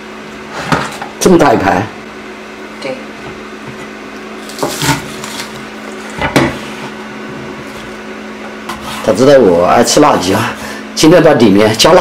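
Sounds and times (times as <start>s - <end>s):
plate and board knocking on counter: 6.2s - 6.6s.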